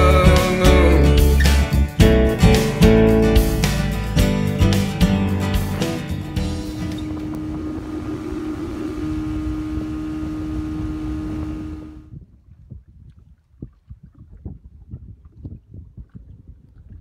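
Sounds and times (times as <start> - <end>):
outboard motor running: 5.5 - 12.1
wind on the microphone: 6.6 - 17.0.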